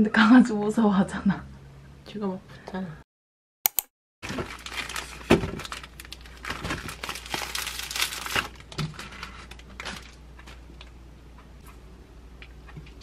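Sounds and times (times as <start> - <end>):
plastic bread bag crinkling: 4.2 - 11.0.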